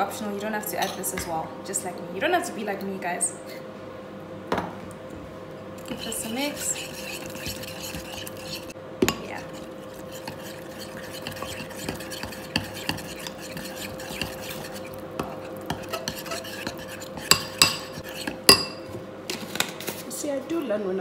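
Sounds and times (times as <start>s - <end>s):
spoon scraping ceramic bowl: 5.8s - 18.8s.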